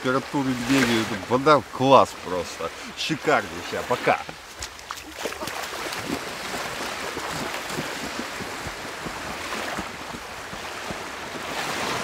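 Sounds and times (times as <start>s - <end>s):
small waves washing: 0.0s - 12.0s
feet splashing in water: 3.3s - 12.0s.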